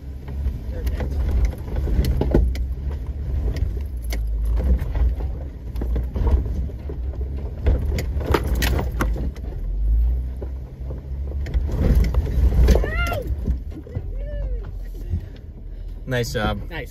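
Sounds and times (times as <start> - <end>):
low engine rumble: 0.0 - 16.9
clicks and rattles: 0.8 - 9.5.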